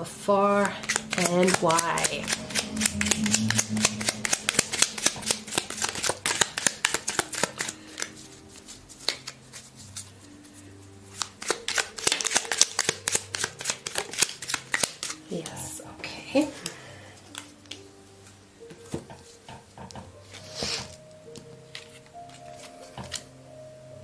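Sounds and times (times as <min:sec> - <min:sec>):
cards being shuffled: 0:00.7 - 0:10.5, 0:11.1 - 0:15.2, 0:17.2 - 0:17.8, 0:21.7 - 0:23.3.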